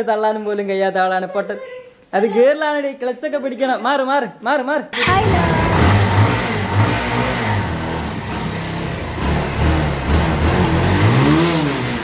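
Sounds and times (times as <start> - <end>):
motorcycle engine revving: 5.0 - 12.0.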